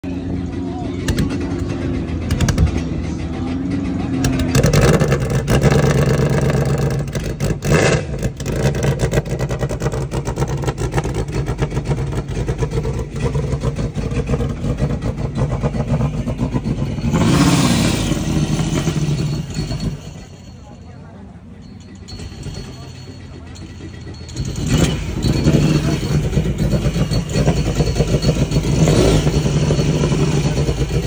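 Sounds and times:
jet ski engine revving: 3.9 - 20.2, 24.3 - 31.0.

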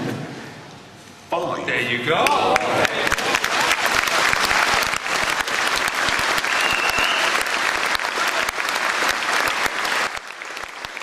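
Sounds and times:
audience applauding: 2.2 - 11.0
high whistle: 6.4 - 7.5.

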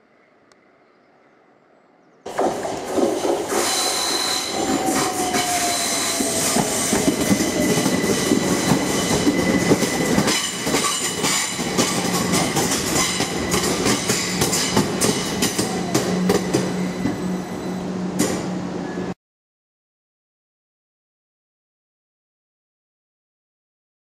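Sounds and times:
electric train running: 2.3 - 18.4
wheel squeal falling in pitch: 3.6 - 10.6.

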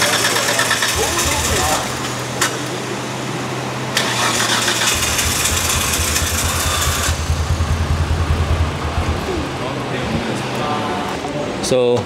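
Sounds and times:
engine cranking without starting: 0.0 - 2.2, 4.0 - 7.5.

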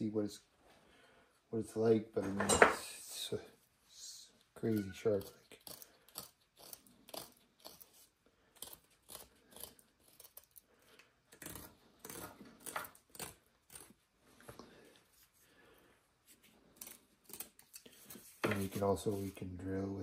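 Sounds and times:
knife shaving wooden stick: 3.9 - 19.8.

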